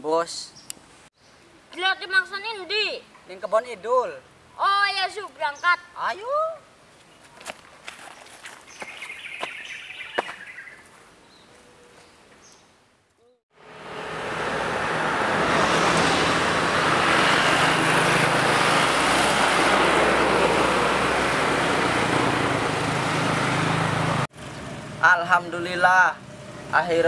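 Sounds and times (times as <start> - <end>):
road noise rushing: 13.5 - 27.0
vehicle engine running: 16.1 - 25.2.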